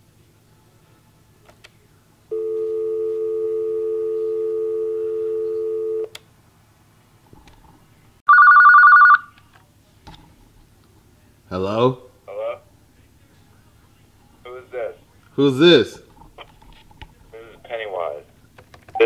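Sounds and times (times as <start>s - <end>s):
telephone dial tone: 2.3s - 6.1s, 8.3s - 9.4s
warbling electronic phone ring: 8.3s - 9.3s.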